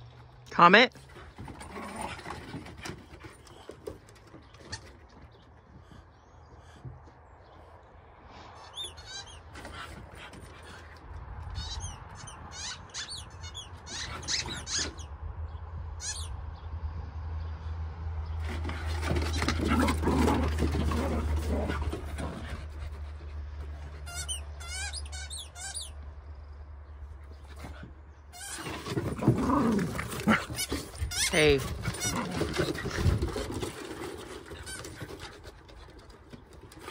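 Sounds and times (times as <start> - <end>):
dogs growling: 1.1 - 4.1, 18.4 - 23.8, 28.7 - 36.9
dog yipping: 11.6 - 15.1.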